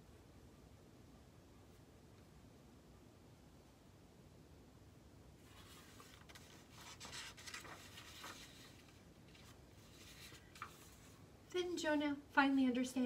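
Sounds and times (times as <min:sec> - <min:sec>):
paper pages rustling: 0:05.4 - 0:11.3.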